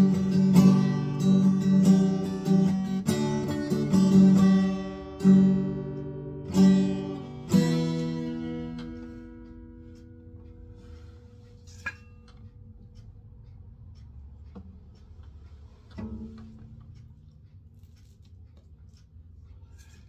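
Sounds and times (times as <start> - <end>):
acoustic guitar notes ringing: 0.0 - 12.4.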